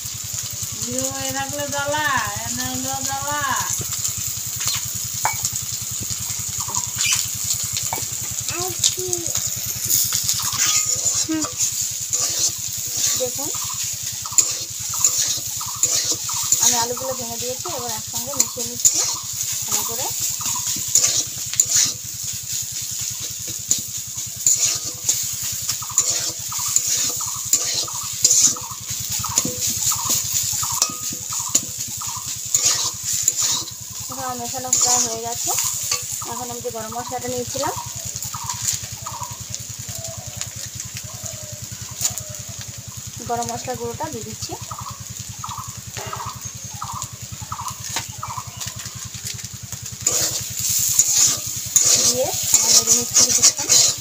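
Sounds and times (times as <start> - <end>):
low rhythmic hum: 0.0 - 54.0
short squeaky chirps: 7.0 - 7.3
metal spatula scraping a pan: 9.4 - 36.6, 50.0 - 54.0
fowl calling: 13.1 - 17.4, 25.7 - 42.8, 44.6 - 49.2.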